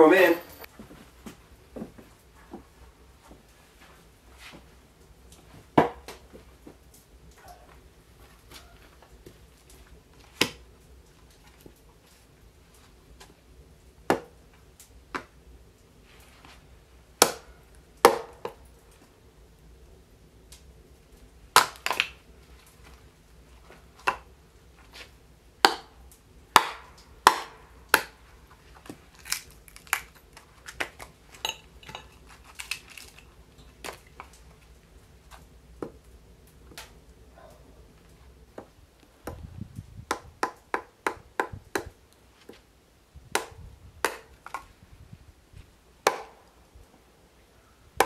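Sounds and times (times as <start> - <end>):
axe chopping wood: 5.7 - 6.2, 10.3 - 10.6, 14.1 - 14.4, 17.2 - 18.6, 21.6 - 22.2, 24.0 - 24.3, 25.6 - 25.9, 26.6 - 28.2, 40.1 - 42.6, 43.3 - 44.7, 46.0 - 46.5.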